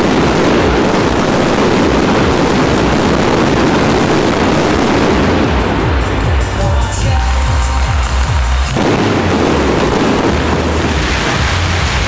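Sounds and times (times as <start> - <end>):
firecrackers and fireworks popping: 0.0 - 12.0.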